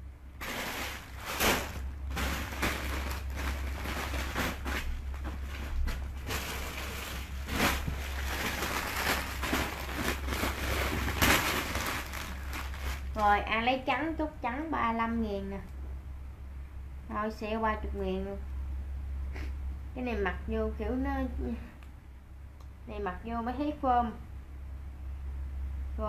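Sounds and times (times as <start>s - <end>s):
steady low hum: 0.0s - 26.0s
clothes rustling: 0.4s - 13.4s.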